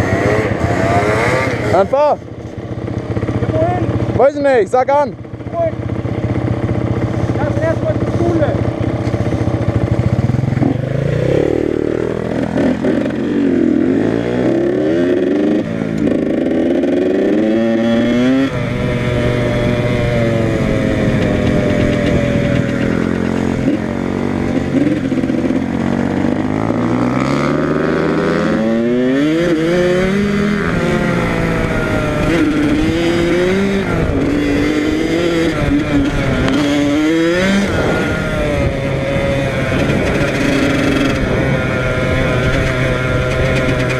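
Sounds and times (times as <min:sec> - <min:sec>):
dirt bike engine revving: 0:00.0 - 0:43.9.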